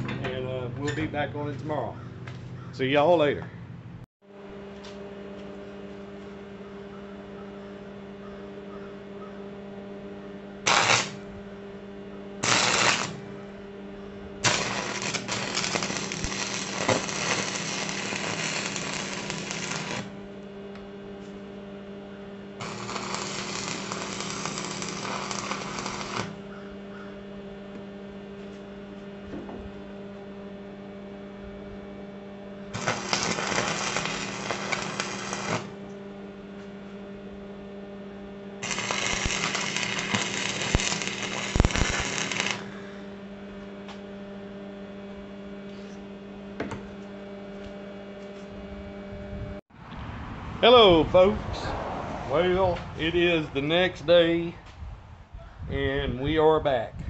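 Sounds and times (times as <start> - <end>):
electrical hum: 0.0 - 57.0
welding arc crackling: 10.6 - 11.2, 12.4 - 13.3, 14.4 - 20.3, 22.6 - 26.5, 32.7 - 35.9, 38.6 - 42.8.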